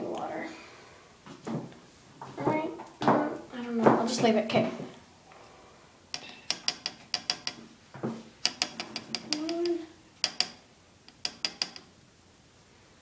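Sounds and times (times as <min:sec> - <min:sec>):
brush tapping on plastic cup: 0:06.2 - 0:11.9.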